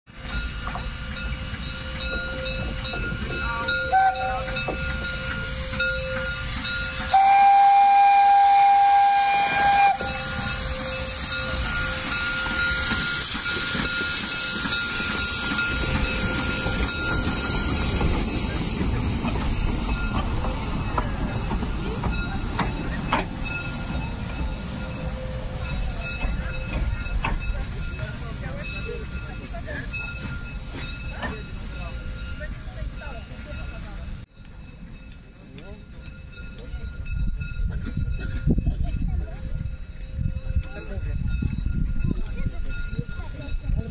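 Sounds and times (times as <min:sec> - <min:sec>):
train running noise: 0:00.1 - 0:43.9
steam hissing: 0:00.2 - 0:34.2
steam whistle: 0:03.8 - 0:04.6, 0:05.4 - 0:13.4.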